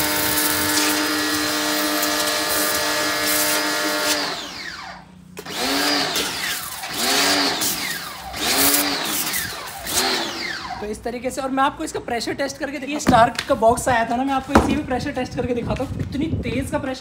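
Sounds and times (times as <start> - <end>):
high-pressure water jet hissing: 0.0 - 4.8, 5.4 - 10.8
electric pressure washer motor: 0.0 - 10.9.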